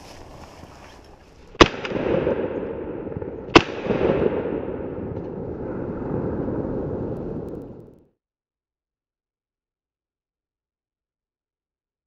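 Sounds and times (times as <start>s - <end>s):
lingering rumble: 1.5s - 8.1s
shotgun shots: 1.6s - 5.6s.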